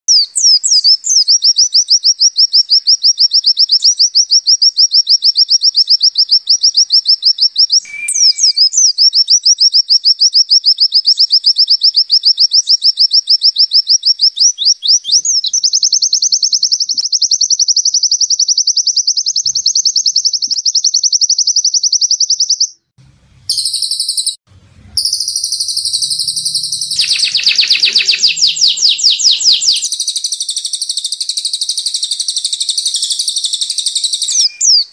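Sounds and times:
bird singing fast trill: 0:00.1 - 0:22.9, 0:23.5 - 0:24.4, 0:25.0 - 0:34.9.

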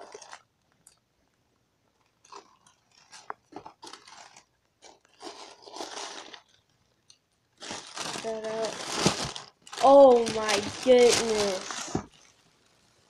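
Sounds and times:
tissue paper rustling: 0:02.3 - 0:06.6, 0:07.6 - 0:12.6.

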